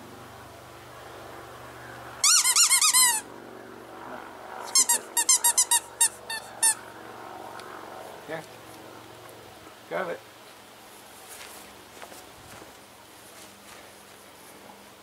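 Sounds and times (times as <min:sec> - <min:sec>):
rubber dog toy squeaking: 0:02.2 - 0:03.2, 0:04.7 - 0:06.8.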